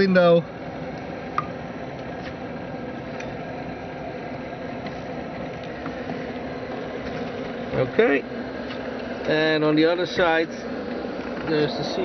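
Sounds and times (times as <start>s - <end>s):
ventilation fans hum and hiss: 0.0s - 12.0s
low steady tone: 0.4s - 9.1s.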